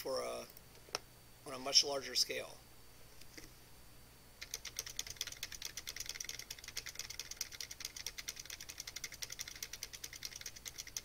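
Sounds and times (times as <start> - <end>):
fast keyboard typing: 4.4 - 11.0.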